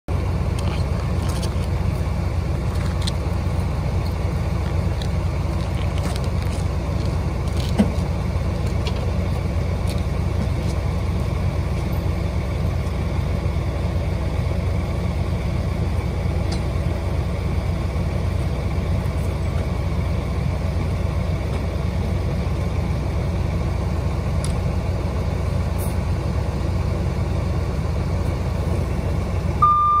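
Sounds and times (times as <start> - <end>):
diesel trucks idling: 0.1 - 30.0.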